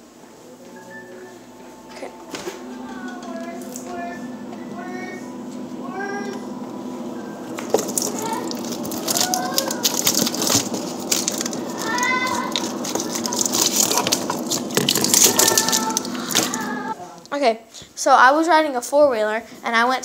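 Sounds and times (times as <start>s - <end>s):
steady low hum: 0.0s - 17.3s
high-pitched cries: 15.0s - 17.0s.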